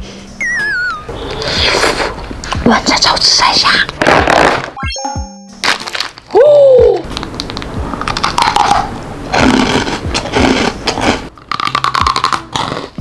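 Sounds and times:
crisp crunching bites: 5.6s - 6.3s, 9.4s - 13.0s
plastic wrapper crinkling: 5.6s - 6.3s.

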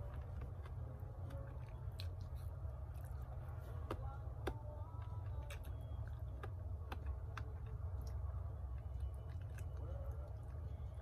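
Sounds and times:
steady low hum: 0.0s - 11.0s
person chewing noodles: 8.0s - 10.9s.

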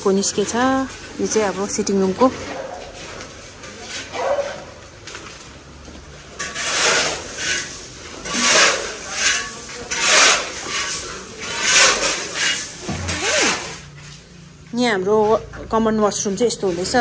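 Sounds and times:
rasping scrapes on gritty surface: 6.4s - 13.8s.

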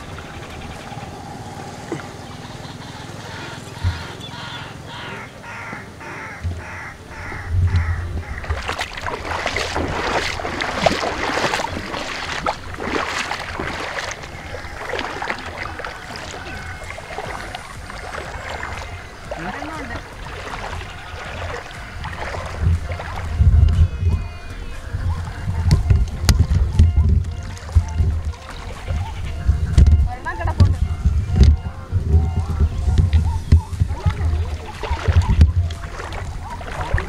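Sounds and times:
water splashing and sloshing: 0.0s - 37.0s
crow cawing: 2.8s - 8.6s
wind on the microphone: 6.4s - 37.0s.

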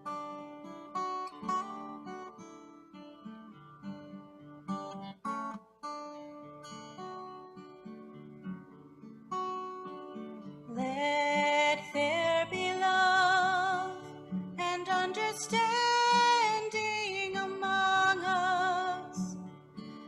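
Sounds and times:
acoustic guitar: 0.0s - 20.0s
woman singing: 10.7s - 19.5s.

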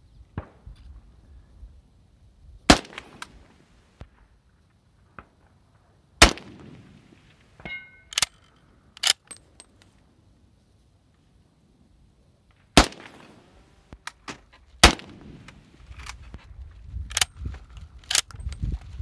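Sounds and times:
rifle shot with echo: 2.7s - 3.5s, 6.2s - 8.2s, 12.7s - 13.7s, 14.8s - 15.7s
sharp metallic clicks: 7.6s - 10.0s, 17.0s - 18.6s
brief metallic ring: 7.7s - 8.4s.

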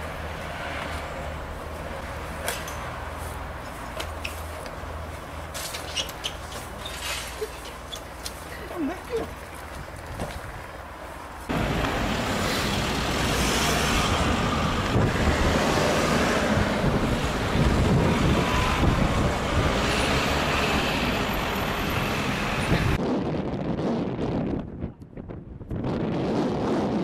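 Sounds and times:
car road noise: 0.0s - 23.0s
wind on microphone: 11.5s - 21.1s, 22.4s - 27.0s.

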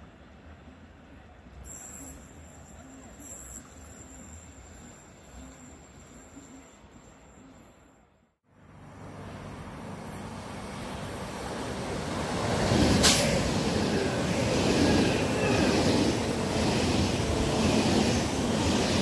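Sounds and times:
train brakes hissing: 1.6s - 7.8s
electric train passing: 8.5s - 19.0s
wheels rushing on rail: 8.6s - 19.0s.

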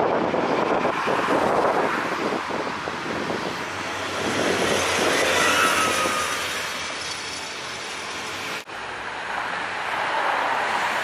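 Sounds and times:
tram wheels rumbling on rail: 0.0s - 8.7s
wheel squeal: 4.3s - 8.6s.

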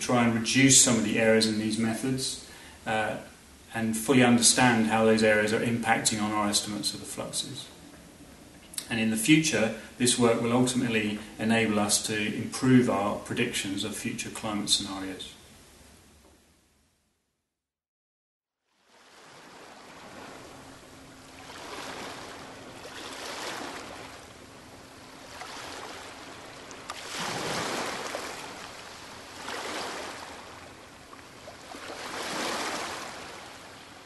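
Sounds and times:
sea surf washing in and out: 18.8s - 34.0s.

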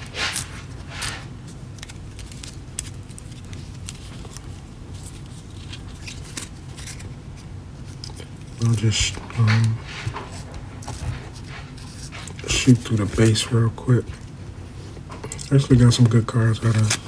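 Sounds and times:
trading cards shuffled by hand: 0.0s - 13.5s.

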